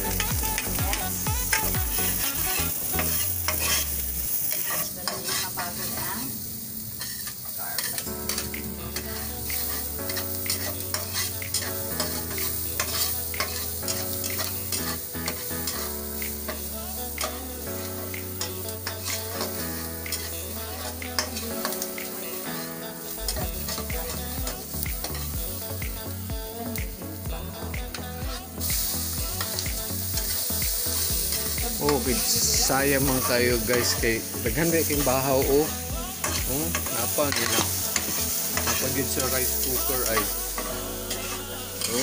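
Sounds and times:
onion sizzling in hot oil: 0.0s - 42.0s
metal spatula scraping pan: 2.2s - 6.3s, 6.9s - 21.9s, 34.9s - 42.0s.

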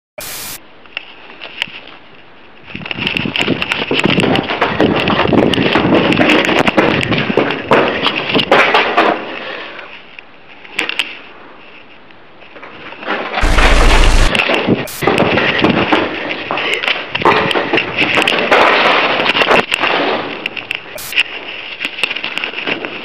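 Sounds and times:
loud static blast: 0.2s - 0.6s, 13.4s - 15.1s
harsh crackling noise: 13.3s - 15.5s, 17.2s - 23.0s.

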